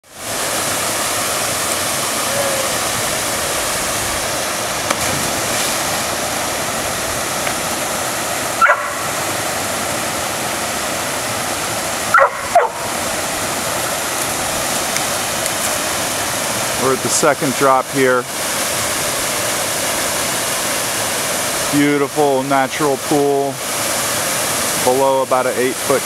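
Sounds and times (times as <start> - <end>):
water cascading into pool: 0.0 - 26.0
short high yelps: 8.6 - 9.1, 12.1 - 12.9.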